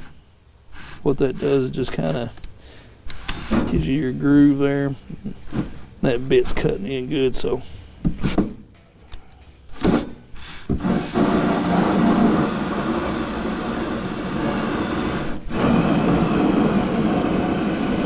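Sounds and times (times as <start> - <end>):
cordless drill high whine: 0.7 - 1.7, 3.1 - 3.6, 9.7 - 18.0.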